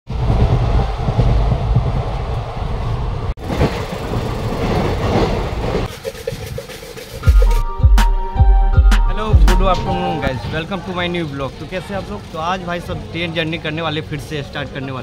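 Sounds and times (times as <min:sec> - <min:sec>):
train coach rumbling: 0:00.1 - 0:07.7.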